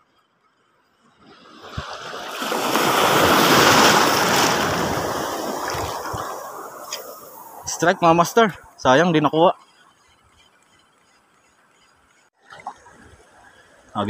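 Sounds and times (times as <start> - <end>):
sea wave rush of water: 1.2 - 8.5.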